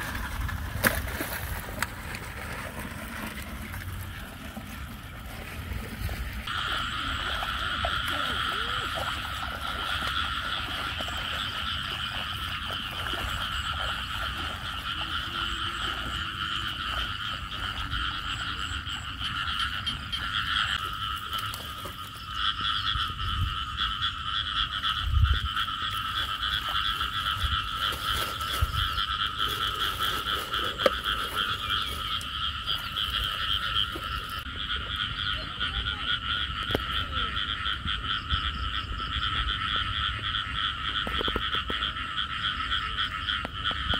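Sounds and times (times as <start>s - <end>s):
frogs chorus trilling: 0.8s - 43.9s.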